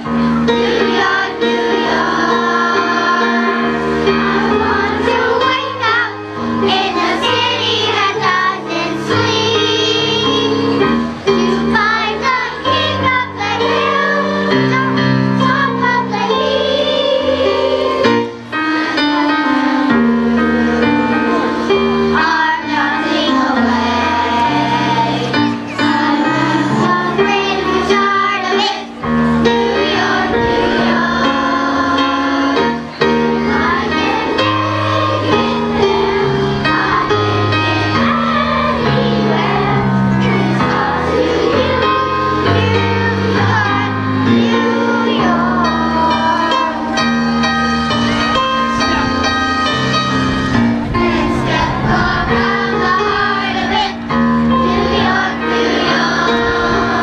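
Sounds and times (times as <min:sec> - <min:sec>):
children's chorus singing: 0:00.0 - 0:57.0
instrumental accompaniment: 0:00.0 - 0:57.0
bass notes: 0:47.3 - 0:53.9.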